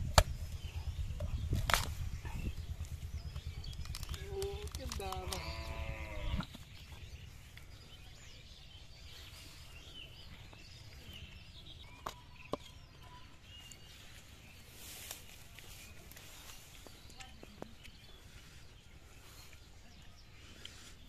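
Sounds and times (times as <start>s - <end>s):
faint bird chirps: 0.3s - 21.0s
sharp clicks: 2.9s - 5.9s.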